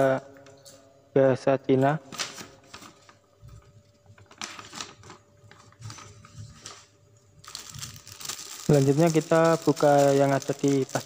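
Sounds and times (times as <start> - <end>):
paper sheet rustling: 2.1 - 3.6, 4.2 - 11.0
plastic packaging crinkling: 2.2 - 11.0.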